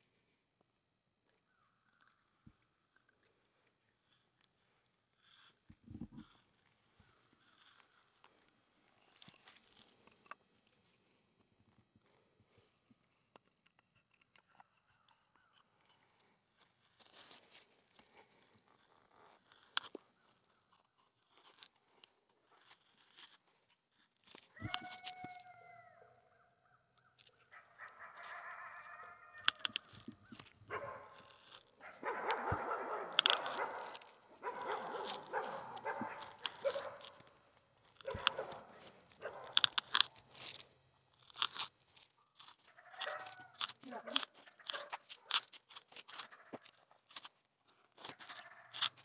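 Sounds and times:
auger crunching into wood: 29.4s - 47.3s.

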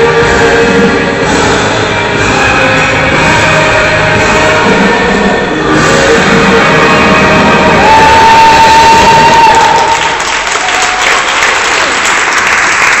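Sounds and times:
rock music: 0.0s - 8.4s
audience applause and cheering: 7.4s - 13.0s.

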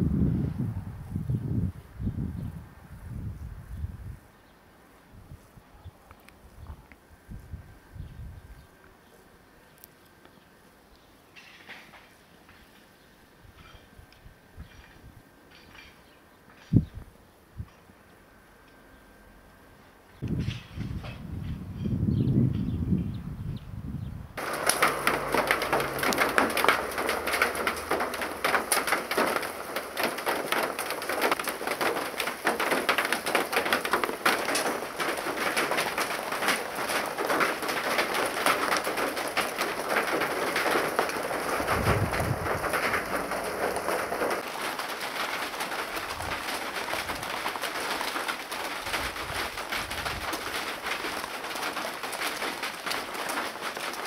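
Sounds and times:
steady rain pattering: 24.4s - 54.0s.

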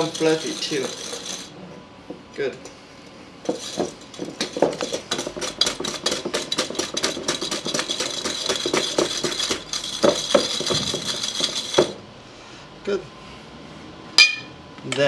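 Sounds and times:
whisk clattering against glass bowl: 0.0s - 1.5s, 3.5s - 12.0s.

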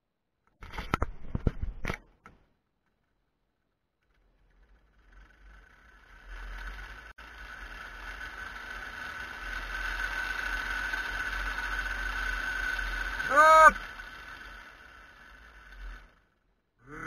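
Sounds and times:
cable trolley running with whine: 4.0s - 17.0s.

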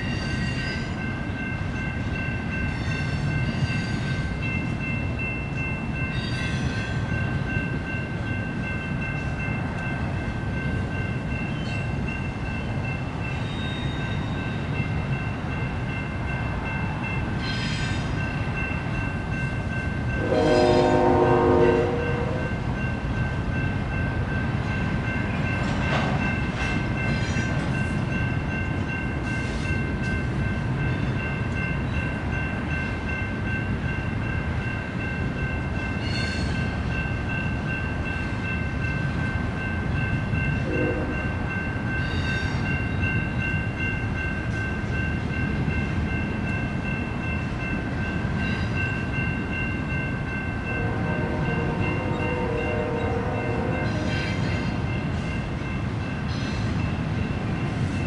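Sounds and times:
train wheels rumbling on rails: 0.0s - 58.0s
train horn: 20.2s - 22.6s, 40.6s - 41.4s, 50.7s - 54.4s.

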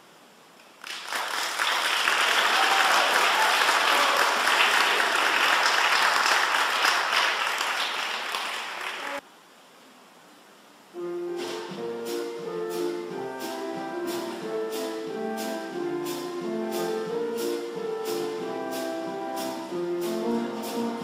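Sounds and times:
audience applauding: 0.8s - 9.2s.

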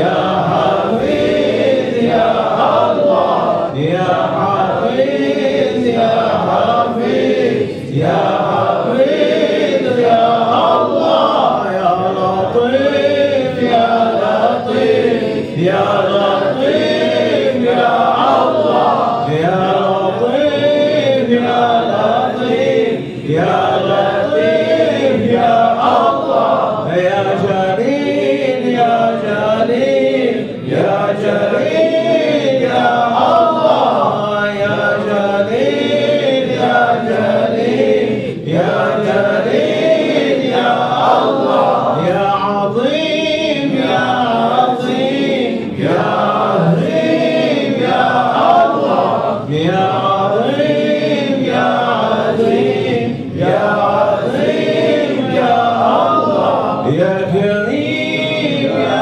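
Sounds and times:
men chanting together: 0.0s - 59.0s.

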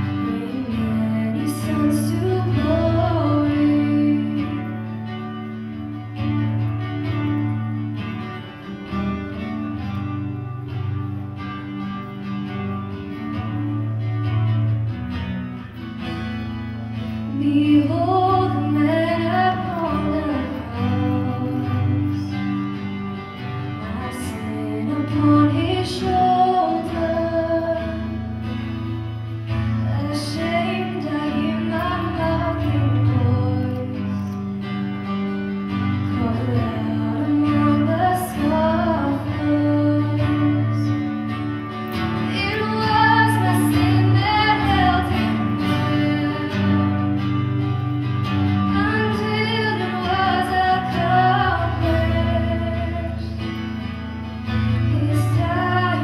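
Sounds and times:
woman singing a hymn: 0.0s - 5.0s, 17.3s - 22.5s, 23.8s - 28.4s, 29.8s - 34.5s, 35.9s - 41.1s, 42.2s - 47.4s, 48.6s - 53.5s, 54.7s - 56.0s
strummed acoustic guitar: 0.0s - 56.0s.

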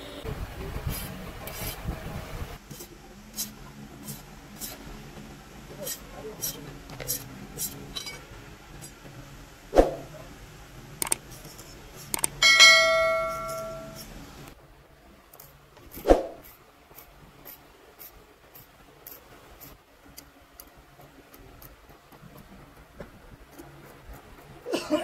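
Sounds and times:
hard strike on metal ringing: 12.4s - 14.0s.

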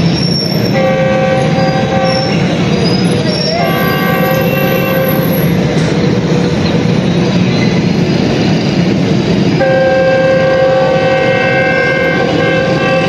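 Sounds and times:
train rumbling: 0.0s - 13.0s
locomotive horn blast: 0.6s - 2.6s, 3.4s - 5.6s, 9.6s - 13.0s.

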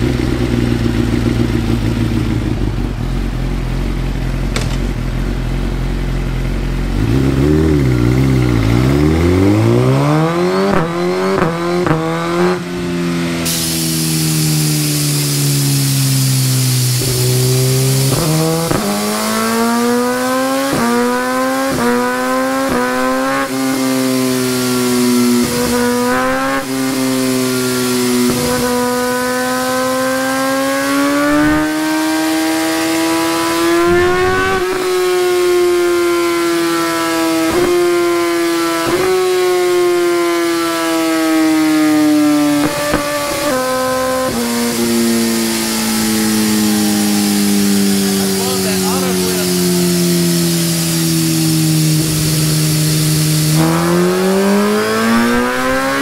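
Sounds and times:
motorcycle engine revving: 0.0s - 56.0s.

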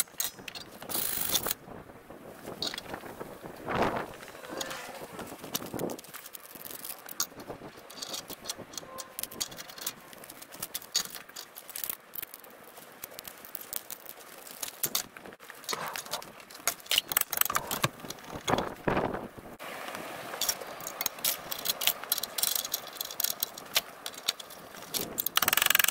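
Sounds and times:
metallic clinks and rattles: 0.0s - 1.6s, 4.2s - 18.7s, 20.4s - 25.9s.

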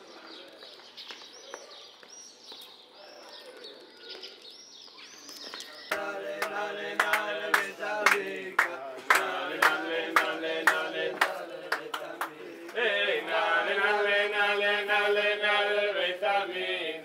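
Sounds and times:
birds chirping: 0.0s - 16.8s.

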